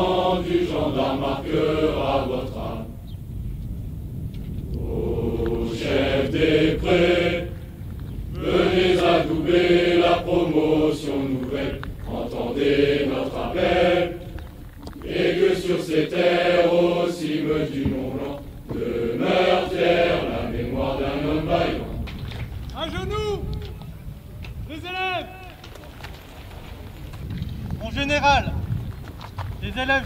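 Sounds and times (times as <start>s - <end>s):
group singing in unison: 0.0s - 3.1s, 4.7s - 22.5s.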